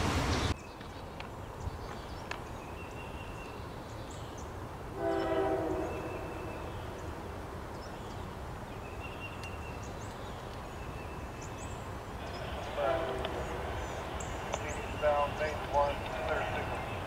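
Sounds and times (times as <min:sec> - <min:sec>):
distant locomotive horn blast: 0:04.9 - 0:07.0, 0:12.2 - 0:17.0.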